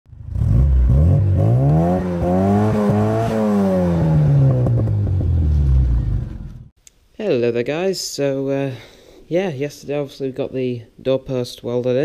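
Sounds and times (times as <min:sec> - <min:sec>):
car engine revving: 0:00.1 - 0:06.7.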